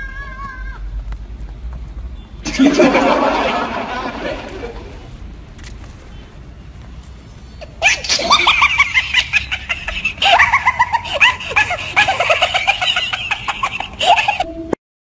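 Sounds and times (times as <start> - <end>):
high-pitched laughter: 2.4 - 5.1, 7.6 - 14.8.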